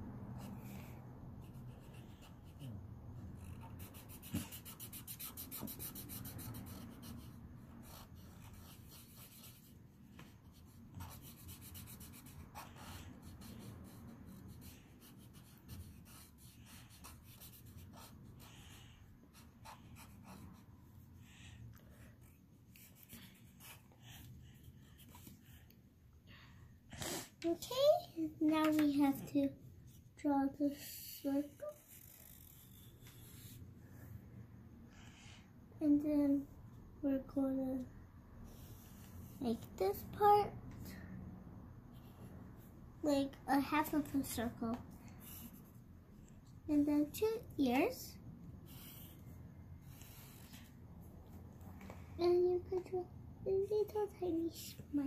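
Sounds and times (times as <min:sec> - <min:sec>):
marker scratching on paper: 0:00.3 - 0:21.1, 0:22.2 - 0:25.6, 0:31.3 - 0:33.7, 0:41.9 - 0:50.8.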